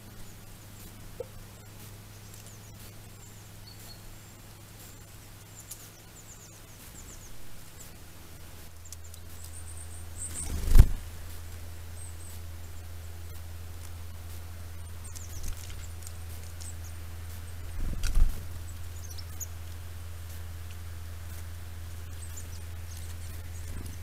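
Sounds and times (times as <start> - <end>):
low electronic hum: 0.0 - 24.0
small bird chirping: 0.0 - 24.0.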